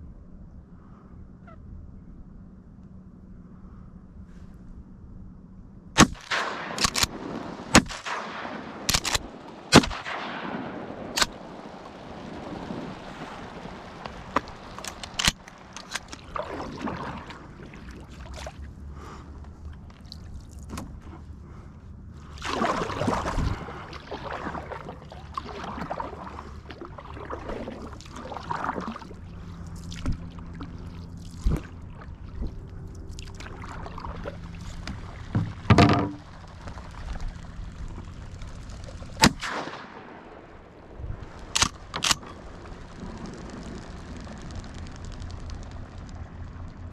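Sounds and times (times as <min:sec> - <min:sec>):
shotgun shots: 0:06.0 - 0:11.6, 0:39.2 - 0:40.5
water splashing: 0:06.0 - 0:21.2, 0:22.2 - 0:46.9
canoe paddle strokes: 0:07.1 - 0:46.9.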